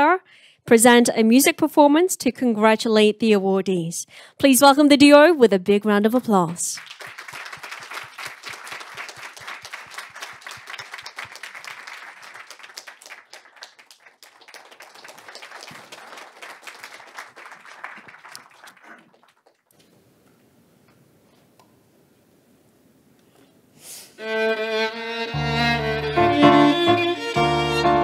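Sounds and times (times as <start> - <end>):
audience applauding: 6.7 - 19.7.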